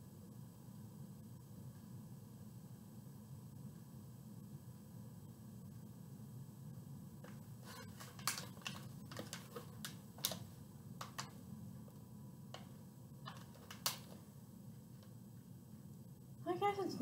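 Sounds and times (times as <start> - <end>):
plastic packaging snaps: 7.3 - 11.4, 13.3 - 14.2
plastic packaging crinkling: 7.6 - 11.4.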